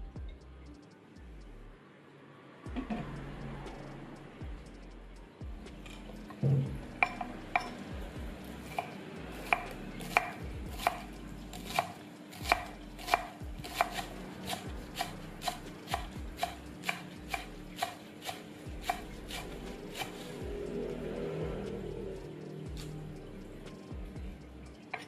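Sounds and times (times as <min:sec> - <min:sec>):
knife chopping on wooden board: 0:08.6 - 0:20.2.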